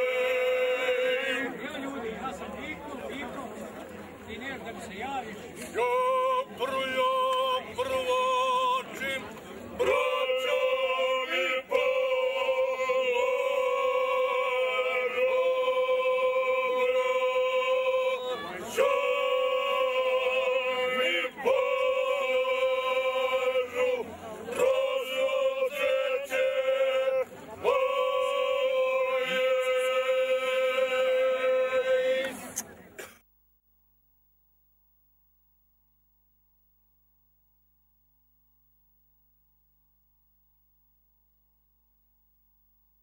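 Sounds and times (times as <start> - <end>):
men singing unaccompanied: 0.0 - 1.9, 5.8 - 32.3.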